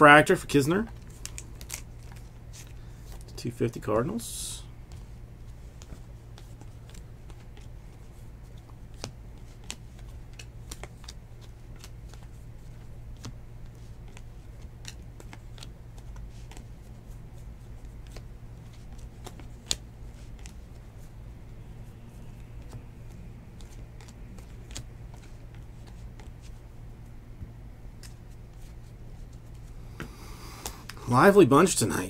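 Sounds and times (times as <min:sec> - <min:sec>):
steady low hum: 0:00.0 - 0:32.0
cards clicking as leafed through: 0:00.8 - 0:03.4, 0:05.7 - 0:20.9, 0:22.3 - 0:26.6, 0:28.0 - 0:31.0.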